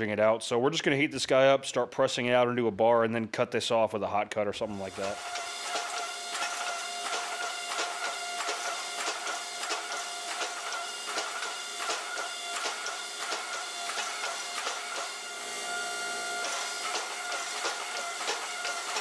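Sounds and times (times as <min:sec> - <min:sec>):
hydraulic press whine: 0:04.6 - 0:19.0
sharp clicks: 0:05.3 - 0:15.1.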